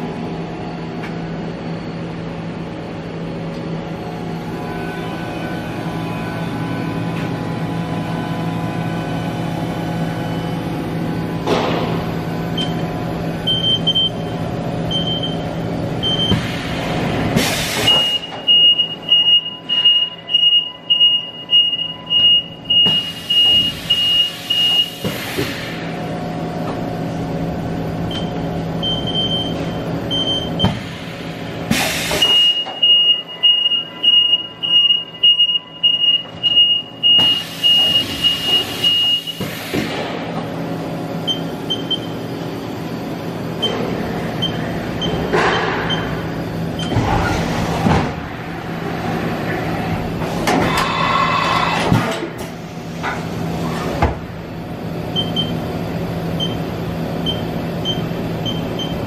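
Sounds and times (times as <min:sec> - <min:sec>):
machine hum: 0:00.0 - 0:25.0, 0:32.6 - 0:59.0
high warning beep: 0:17.9 - 0:25.0, 0:32.2 - 0:39.4.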